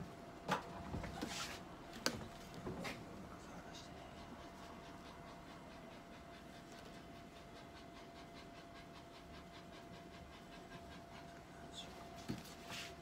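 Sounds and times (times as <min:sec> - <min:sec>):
cat panting: 0:03.3 - 0:13.0.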